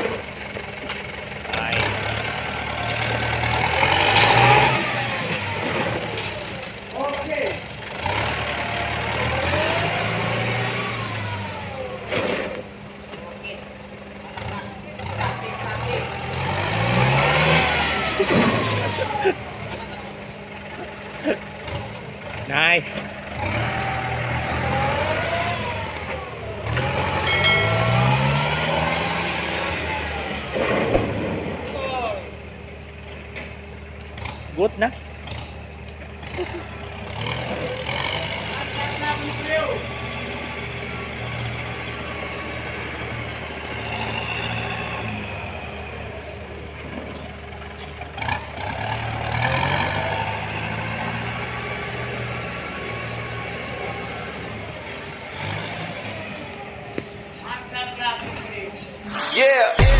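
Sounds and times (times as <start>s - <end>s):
tractor diesel engine running: 0.0s - 10.0s, 17.8s - 37.8s.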